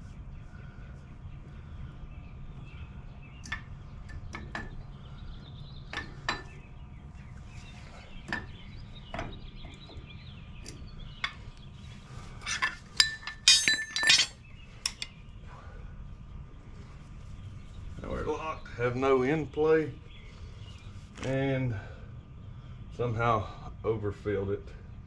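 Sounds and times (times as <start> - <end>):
metal parts clinking: 12.4 - 15.1.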